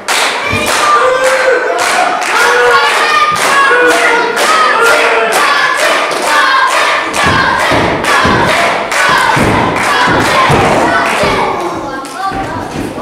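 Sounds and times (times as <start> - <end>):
rhythmic clapping: 0.0 - 13.0
crowd chanting: 0.4 - 12.0
heavy low thuds: 7.1 - 11.6.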